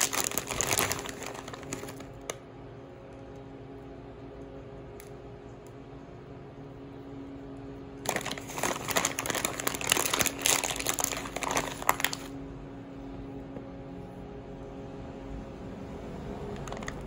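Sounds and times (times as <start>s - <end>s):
plastic bag crinkling: 0.0s - 2.4s, 8.0s - 12.4s
faint low hum: 0.0s - 17.0s.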